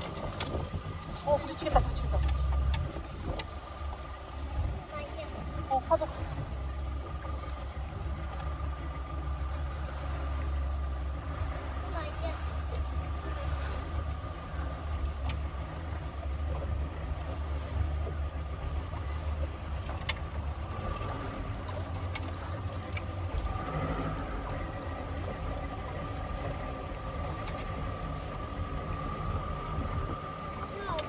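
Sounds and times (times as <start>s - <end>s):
motorboat engine running: 0.0s - 31.0s.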